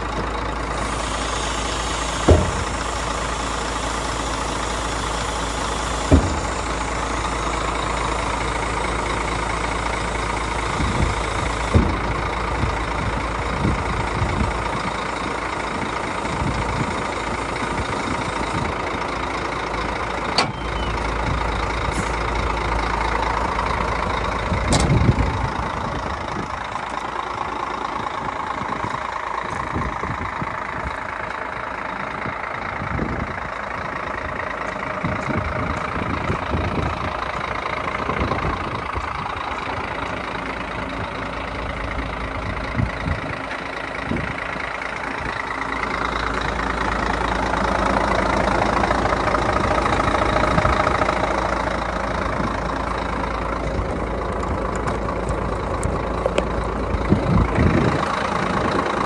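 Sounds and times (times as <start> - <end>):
diesel truck engine idling: 0.0 - 59.0
thump: 2.2 - 2.9, 6.0 - 6.8, 11.7 - 12.2.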